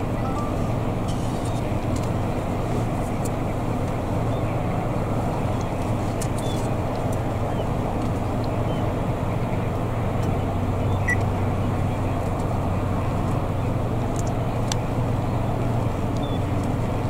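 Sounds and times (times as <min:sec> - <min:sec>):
low hum: 0:00.0 - 0:11.9
low outdoor rumble: 0:00.0 - 0:17.0.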